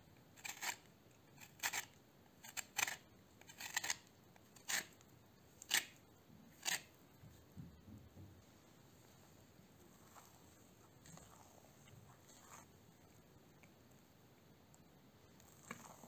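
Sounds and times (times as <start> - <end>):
lemon peel scraping on grater: 0.4 - 5.0, 6.6 - 6.9.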